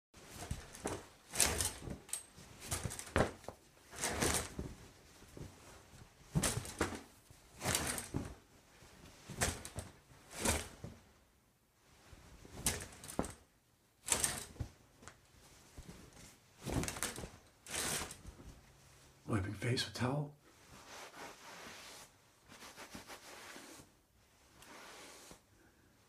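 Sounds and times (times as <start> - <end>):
shower curtain pulled aside: 0.2 - 4.8, 6.3 - 8.4, 9.3 - 10.9, 12.5 - 13.4, 14.0 - 14.6, 16.6 - 18.4, 20.6 - 25.5
towel rubbing against skin: 20.5 - 25.5.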